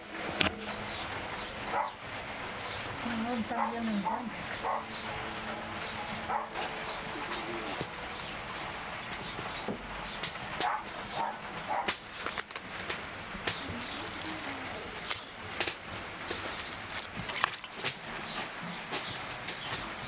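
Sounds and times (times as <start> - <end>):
distant dog barking: 1.7 - 2.0, 3.5 - 5.0, 6.2 - 7.8, 10.6 - 12.0
bird calls: 5.8 - 15.5.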